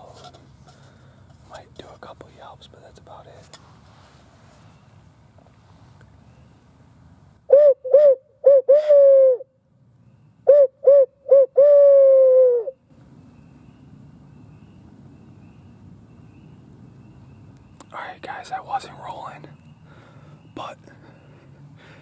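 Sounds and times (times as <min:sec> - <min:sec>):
owl hooter call: 0:07.5 - 0:09.5, 0:10.4 - 0:12.8.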